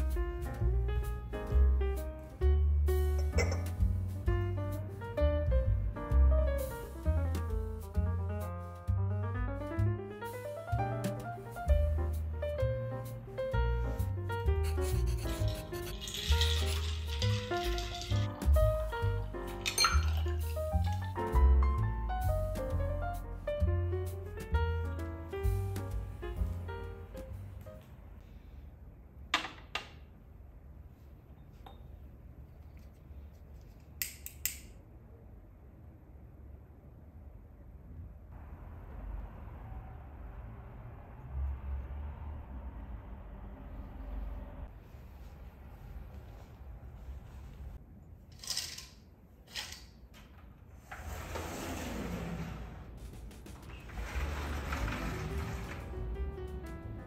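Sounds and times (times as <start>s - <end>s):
hard objects clinking: 15.2s - 18.4s, 19.6s - 21.1s.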